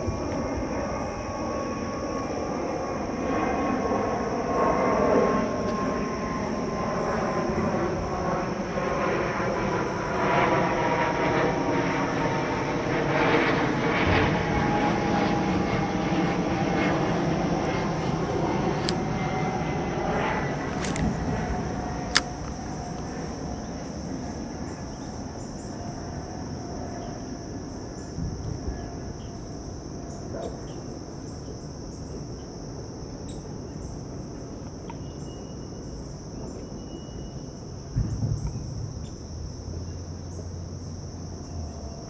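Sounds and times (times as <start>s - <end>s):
aircraft passing: 0.0s - 36.9s, 37.5s - 42.0s
insect chorus: 0.0s - 42.0s
low rumble: 17.6s - 24.7s
sharp click: 22.1s - 22.6s.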